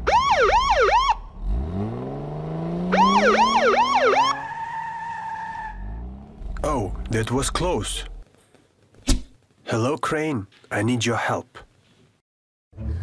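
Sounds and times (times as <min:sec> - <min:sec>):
police siren yelping: 0:00.0 - 0:01.3, 0:02.9 - 0:06.0
car engine revving: 0:01.2 - 0:08.2.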